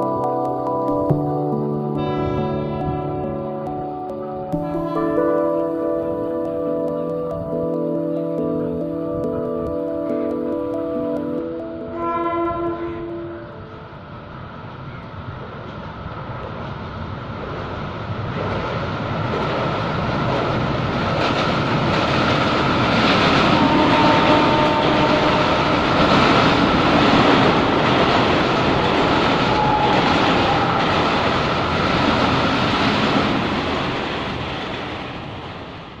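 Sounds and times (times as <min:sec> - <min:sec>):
electric train running: 0:04.5 - 0:36.0
wheels clacking over rail joints: 0:18.3 - 0:35.5.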